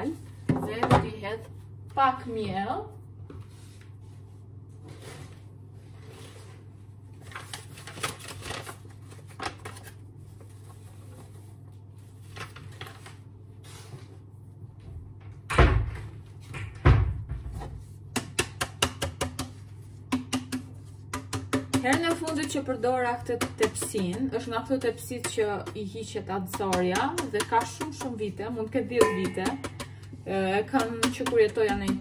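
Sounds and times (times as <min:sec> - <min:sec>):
things being handled: 0:26.6 - 0:32.0.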